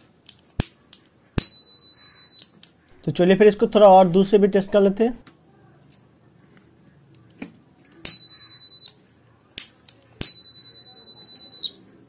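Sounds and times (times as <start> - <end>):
high steady buzzer beep: 1.4 - 2.5, 8.1 - 9.0, 10.2 - 11.8.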